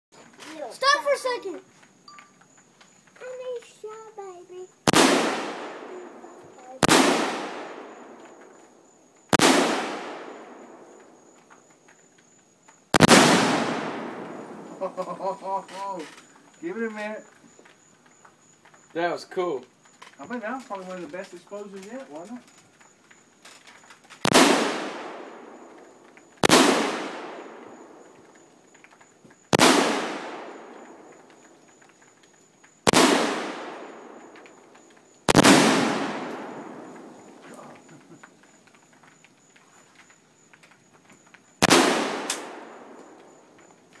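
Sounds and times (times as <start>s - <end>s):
rifle shots echoing: 4.8s - 8.6s, 9.3s - 11.2s, 12.9s - 15.0s, 24.2s - 28.3s, 29.5s - 31.5s, 32.8s - 37.4s, 41.6s - 43.5s.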